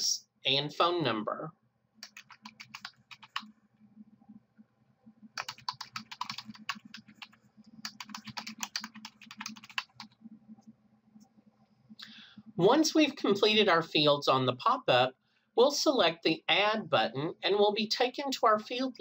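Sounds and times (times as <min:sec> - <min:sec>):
typing on computer keyboard: 0:02.0 - 0:03.5, 0:05.4 - 0:10.2.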